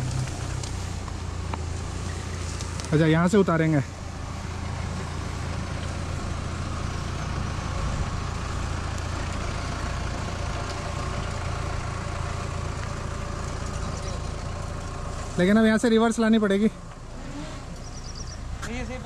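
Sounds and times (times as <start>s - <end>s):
engine running at low revs: 0.0s - 19.0s.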